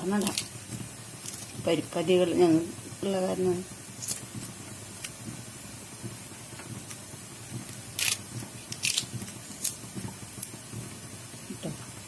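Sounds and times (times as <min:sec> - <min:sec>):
kitchen scissors snipping: 0:08.0 - 0:09.8.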